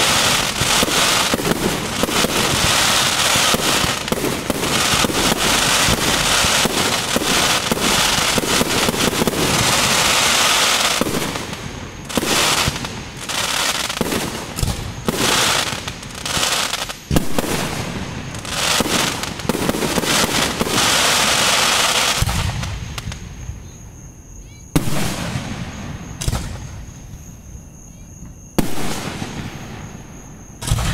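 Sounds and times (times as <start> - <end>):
fireworks bursting and crackling: 0.0 - 23.5, 24.7 - 26.9, 28.6 - 30.9
loud firework bang: 30.6 - 30.9.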